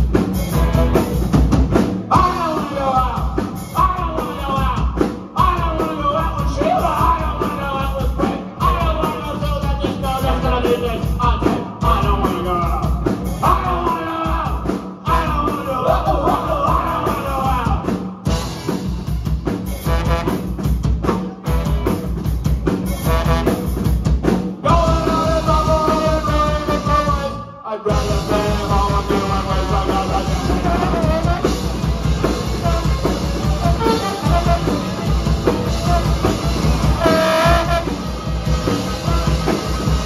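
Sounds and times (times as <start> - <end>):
bass guitar: 0.0 - 40.0
drum kit beat: 0.0 - 40.0
electric guitars: 0.0 - 40.0
trombone melody: 0.4 - 1.4, 19.7 - 20.7, 21.4 - 22.1, 22.9 - 23.9, 24.7 - 27.4, 28.0 - 39.8.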